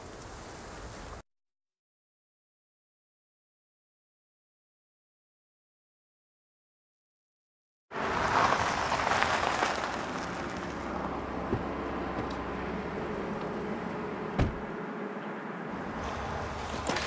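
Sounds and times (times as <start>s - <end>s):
car engine running: 8.0s - 17.0s
car door opening click and thump: 11.5s - 12.5s, 14.3s - 14.7s.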